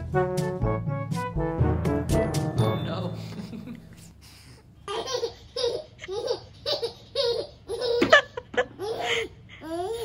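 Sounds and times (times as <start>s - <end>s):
toddler laughing: 4.8s - 10.0s.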